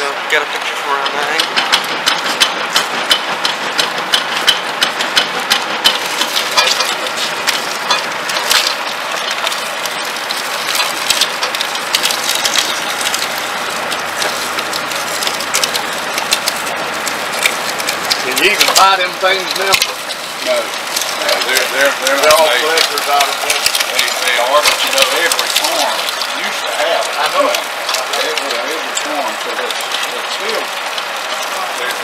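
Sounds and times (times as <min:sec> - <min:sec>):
mill gears clacking: 0:00.0 - 0:32.0
cane stalks crackling crushed: 0:00.6 - 0:32.0.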